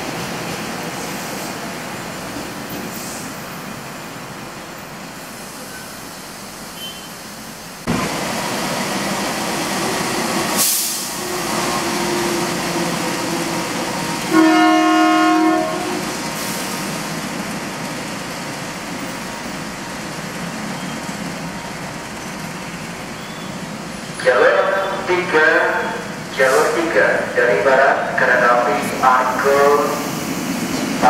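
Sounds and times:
train running rumble: 7.3s - 31.0s
locomotive horn blast: 14.3s - 16.1s.

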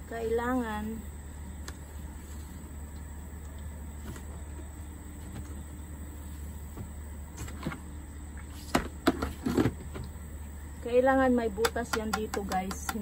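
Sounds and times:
steady low hum: 0.0s - 13.0s
plastic bucket lid scraping: 8.5s - 10.0s.

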